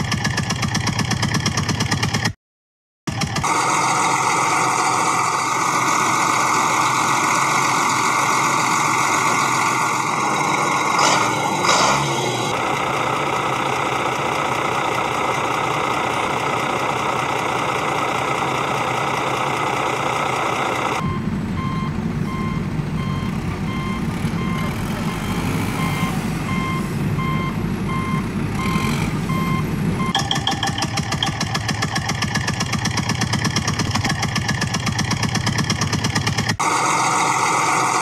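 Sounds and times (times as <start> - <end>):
vehicle engine running: 3.1 - 38.0
reversing alarm beeping: 21.0 - 31.6.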